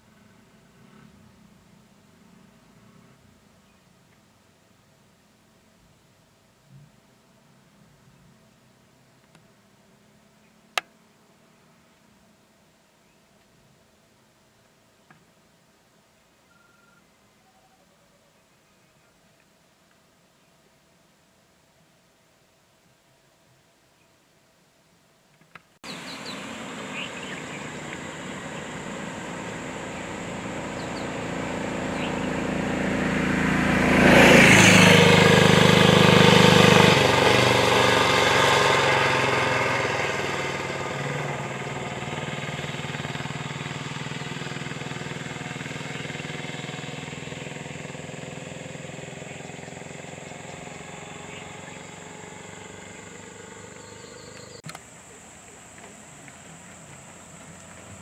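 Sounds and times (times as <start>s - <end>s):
vehicle engine passing by: 0.0s - 3.4s, 25.8s - 58.0s.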